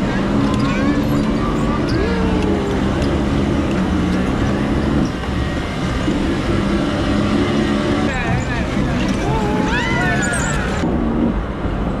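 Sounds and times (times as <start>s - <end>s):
bumper car rolling rumble: 0.0s - 12.0s.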